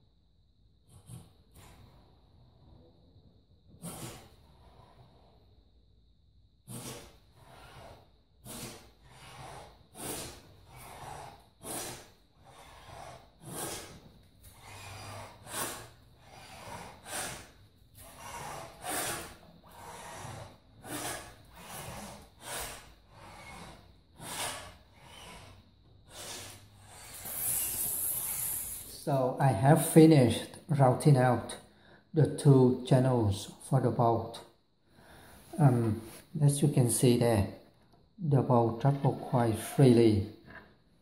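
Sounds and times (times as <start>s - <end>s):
router plane scraping wood: 3.8s - 5.2s, 6.7s - 28.9s.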